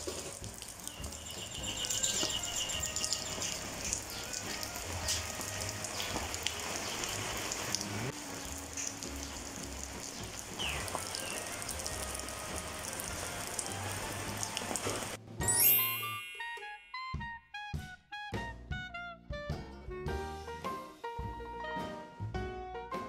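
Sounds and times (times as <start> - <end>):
steady rain falling: 0.0 - 15.2
music: 0.0 - 23.0.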